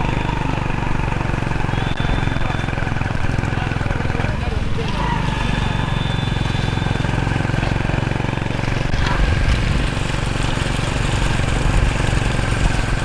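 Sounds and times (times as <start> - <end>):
indistinct voices: 0.0 - 7.8
engine running steadily: 0.0 - 13.0.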